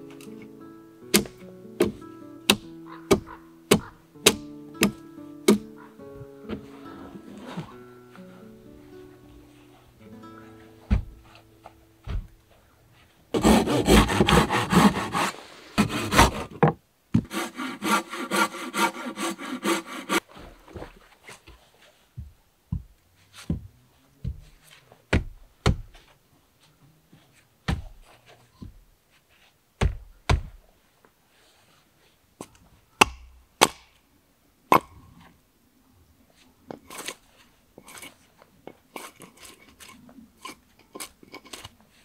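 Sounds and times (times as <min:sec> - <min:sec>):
logs knocking: 0:01.1 - 0:06.7, 0:10.9 - 0:11.2, 0:13.4 - 0:17.4
hand saw cutting wood: 0:13.3 - 0:20.2, 0:38.9 - 0:41.7.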